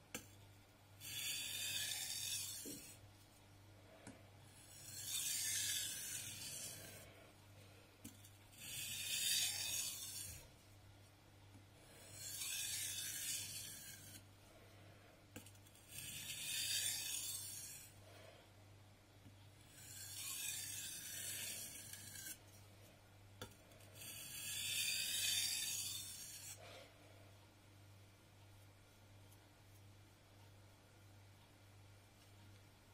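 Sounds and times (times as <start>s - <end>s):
knife scraping on sharpening stone: 1.0s - 3.0s, 4.6s - 7.0s, 8.2s - 10.5s, 12.0s - 14.2s, 15.4s - 17.9s, 19.7s - 22.4s, 23.8s - 26.6s.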